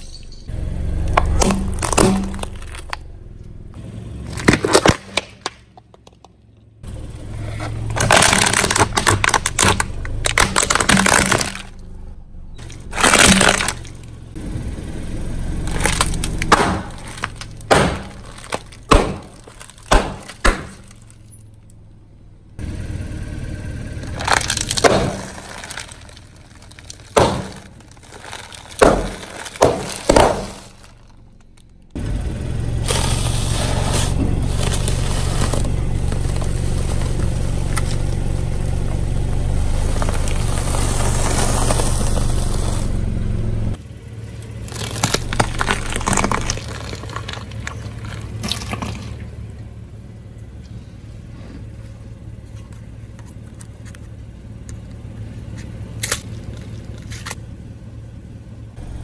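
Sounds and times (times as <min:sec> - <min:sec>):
tyre crushing snack packets: 0:04.3 - 0:05.6, 0:07.9 - 0:11.8, 0:12.6 - 0:14.1, 0:15.6 - 0:21.3, 0:24.0 - 0:31.8, 0:44.6 - 0:49.2.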